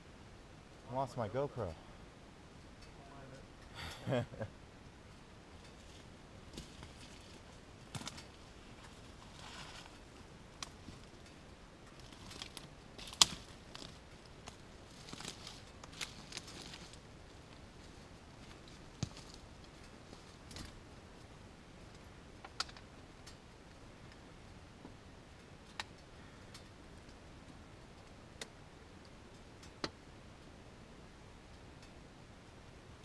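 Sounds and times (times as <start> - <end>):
soft steady hiss: 0.0 - 33.0
clicks and crackles in dry twigs: 4.8 - 30.5
twig snapping: 12.0 - 17.0.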